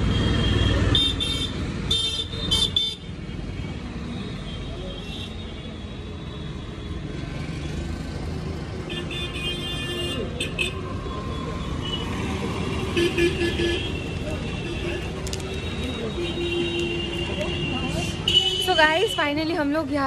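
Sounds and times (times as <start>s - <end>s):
street traffic: 0.0s - 20.0s
vehicle horns beeping: 11.7s - 19.4s.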